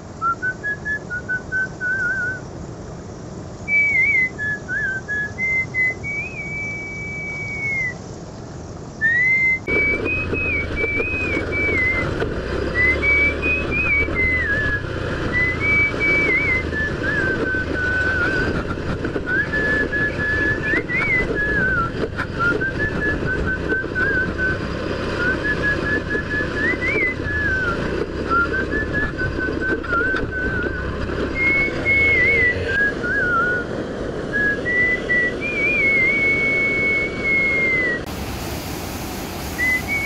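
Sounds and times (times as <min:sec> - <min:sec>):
person whistling a tune: 0:00.2 - 0:02.4, 0:03.7 - 0:08.0, 0:09.0 - 0:33.7, 0:34.3 - 0:38.1, 0:39.6 - 0:40.0
scooter running on dirt track: 0:09.0 - 0:38.1.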